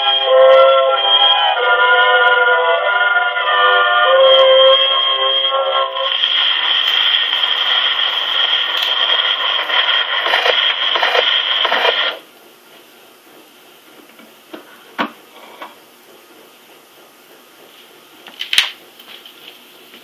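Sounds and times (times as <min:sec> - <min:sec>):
tenor voice with orchestra record: 0:00.9 - 0:01.8
scattered clicks and knocks: 0:06.1 - 0:12.2.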